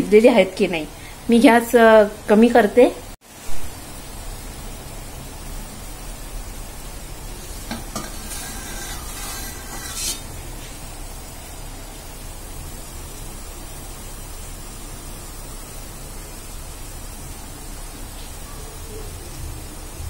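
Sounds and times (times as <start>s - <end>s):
steaming pot hissing: 3.3s - 20.0s
metal lid clinking and scraping: 7.4s - 10.3s.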